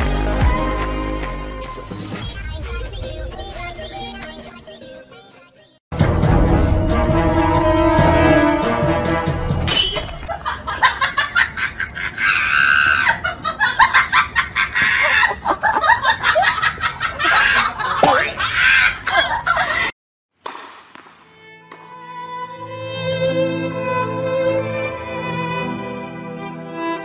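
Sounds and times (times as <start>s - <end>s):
high-pitched cackling laughter: 10.3s - 19.9s.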